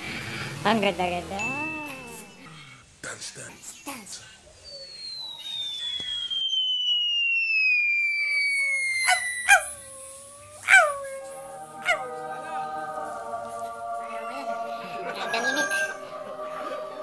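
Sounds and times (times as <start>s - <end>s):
sharp falling pings: 1.4s - 2.5s
held tones together: 1.4s - 2.6s, 4.8s - 10.4s
falling cartoon whistle: 4.6s - 11.0s.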